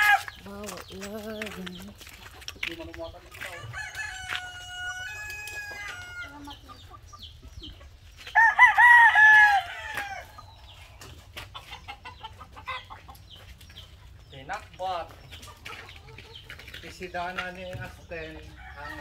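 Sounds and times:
roosters crowing: 0.0 - 0.5, 3.3 - 7.0, 8.2 - 10.9, 17.7 - 19.0.

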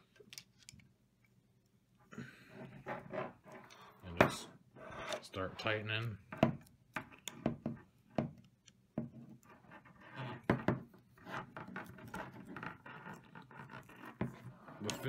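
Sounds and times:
tools knocking on wooden table: 4.2 - 4.4, 6.3 - 8.4, 10.4 - 10.9.

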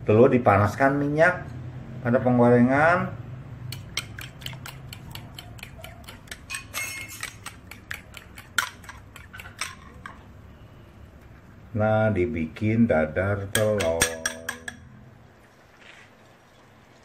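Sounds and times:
utensil clinking against ceramic bowl: 3.7 - 10.3, 13.5 - 14.9.

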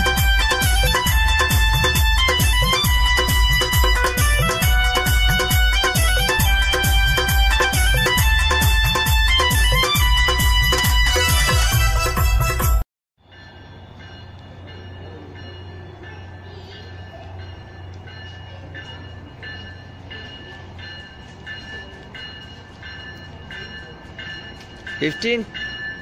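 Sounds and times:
song playing: 0.0 - 12.8
railroad crossing bell dinging: 0.0 - 26.0.

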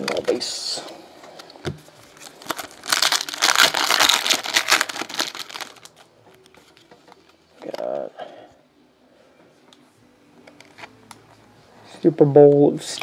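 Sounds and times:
foil wrapper tearing and crinkling: 2.1 - 6.0.

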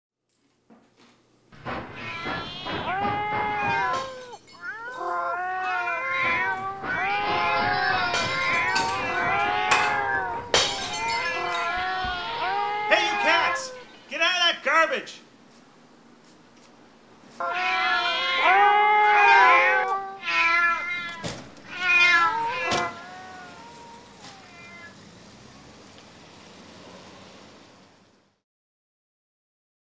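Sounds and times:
sharp knocks: 1.6 - 4.8, 5.7 - 13.5
cats yowling: 1.6 - 14.1, 17.4 - 25.2.

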